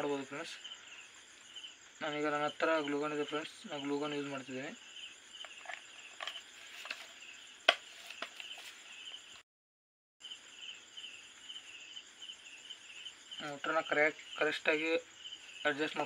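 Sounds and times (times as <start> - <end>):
crickets chirping: 0.0 - 9.4, 10.2 - 16.0
plastic parts clicking and knocking: 5.4 - 7.1.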